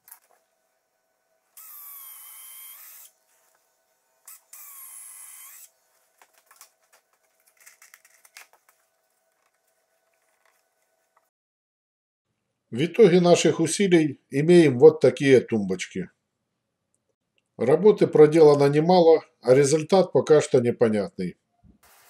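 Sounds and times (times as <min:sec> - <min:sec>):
cordless drill running: 0:01.6 - 0:03.2, 0:04.3 - 0:05.7.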